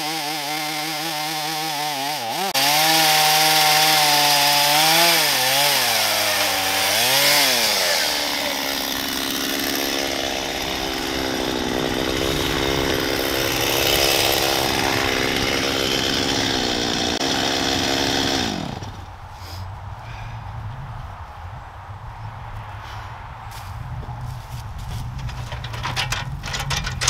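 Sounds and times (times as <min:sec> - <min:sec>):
chainsaw cutting through log: 0:00.0 - 0:19.1.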